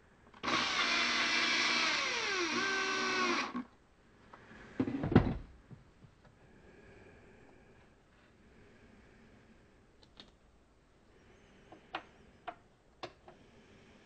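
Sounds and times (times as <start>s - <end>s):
cordless drill driving a screw: 0.4s - 3.6s.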